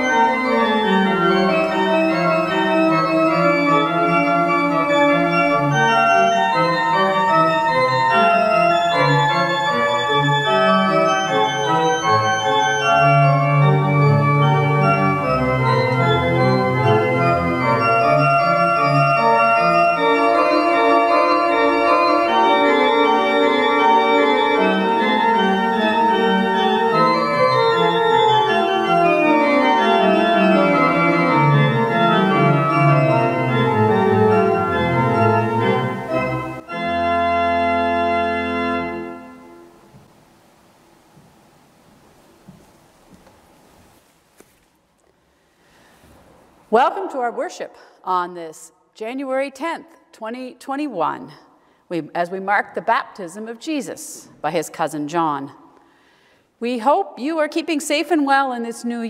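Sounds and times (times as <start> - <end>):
pipe organ sustained chords: 0.0 - 39.9.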